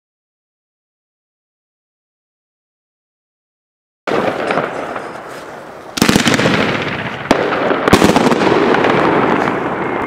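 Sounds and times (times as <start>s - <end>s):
crackling background: 4.1s - 10.0s
fireworks bangs: 4.1s - 10.0s.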